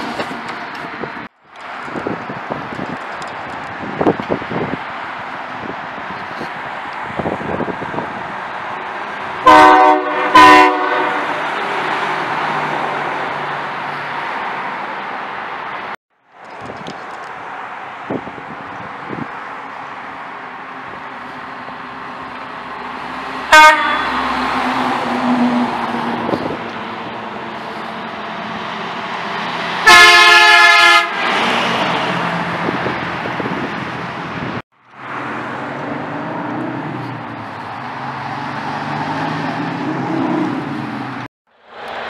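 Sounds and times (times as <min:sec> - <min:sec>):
trucks driving past: 0:00.0 - 0:42.0
truck horn honks: 0:09.4 - 0:11.5, 0:23.5 - 0:24.4, 0:29.8 - 0:31.3.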